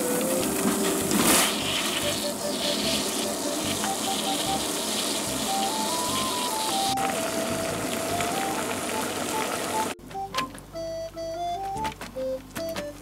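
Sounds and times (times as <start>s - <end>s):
boiling water bubbling: 0.0s - 10.0s
light background tune: 0.0s - 13.0s.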